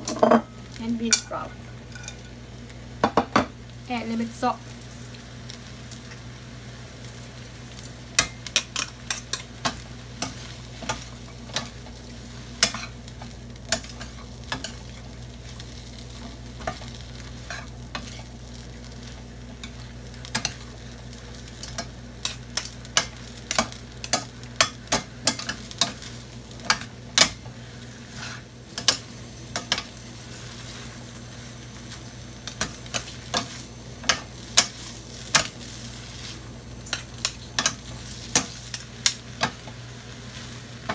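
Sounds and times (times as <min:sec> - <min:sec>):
food sizzling in a skillet: 0:00.0 - 0:40.9
utensils scraping a pan: 0:16.2 - 0:18.3, 0:28.1 - 0:29.0.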